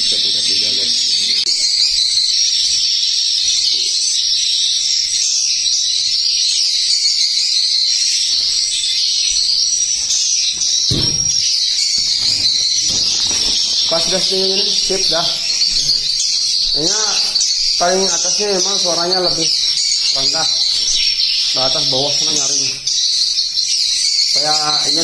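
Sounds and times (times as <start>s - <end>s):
bird chirping through speakers: 0.0s - 25.0s
dull thump: 10.6s - 11.5s.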